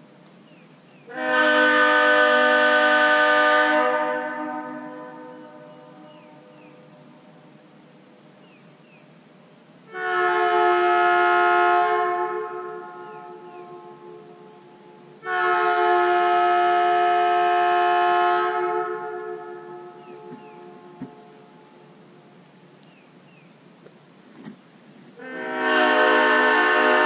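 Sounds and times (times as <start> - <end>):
locomotive air horn blasts: 1.1 - 6.3, 9.9 - 21.6, 25.2 - 27.0.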